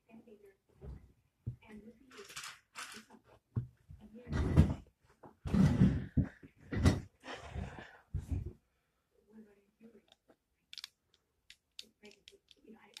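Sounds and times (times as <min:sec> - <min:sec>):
plastic bricks clattering on table: 0:10.7 - 0:13.0.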